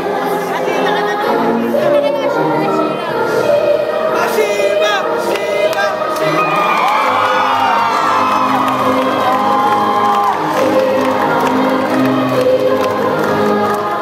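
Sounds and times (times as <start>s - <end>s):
choir singing with music: 0.0s - 14.0s.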